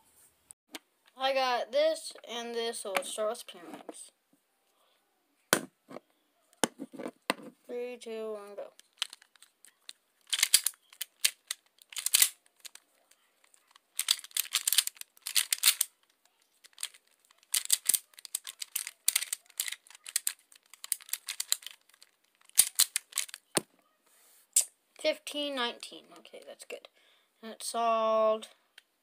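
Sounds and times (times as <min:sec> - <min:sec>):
plastic puzzle clicking turns: 0:08.8 - 0:23.6.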